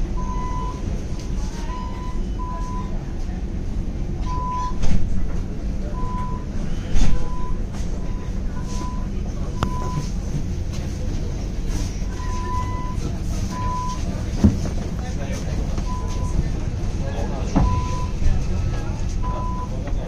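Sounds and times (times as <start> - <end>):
street traffic: 0.0 - 20.0
tram rumbling: 0.0 - 20.0
short electronic beeps: 4.2 - 4.8.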